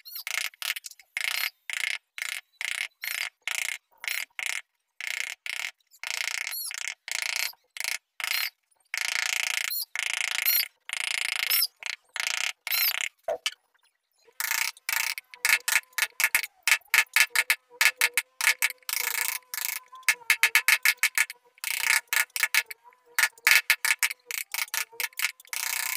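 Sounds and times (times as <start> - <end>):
chisel scraping wood: 14.4 - 25.9
mallet tapping chisel: 14.9 - 25.6.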